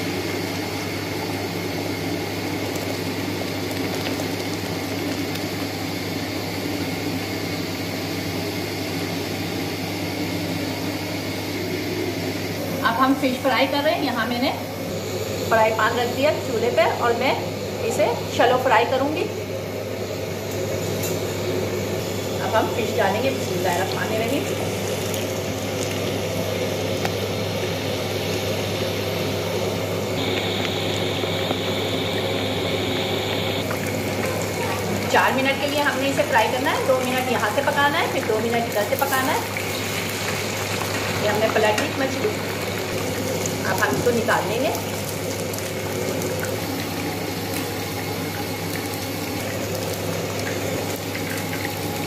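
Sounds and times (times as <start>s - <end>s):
fish sizzling in frying pan: 0.0s - 12.6s, 20.0s - 52.0s
low hum: 30.1s - 36.3s.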